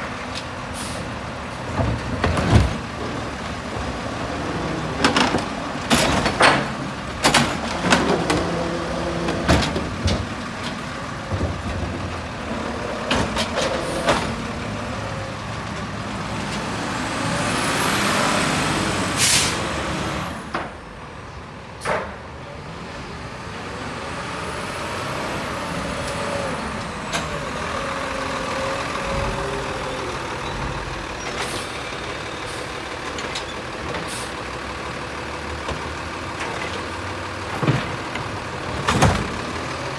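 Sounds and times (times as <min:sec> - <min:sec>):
diesel engine running: 0:00.0 - 0:39.9
air brake hiss: 0:19.2 - 0:19.6.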